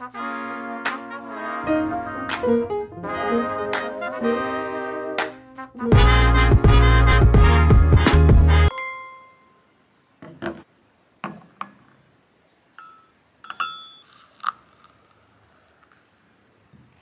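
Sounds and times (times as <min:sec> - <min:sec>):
metal spoon clinking on porcelain cup: 0:12.8 - 0:14.3.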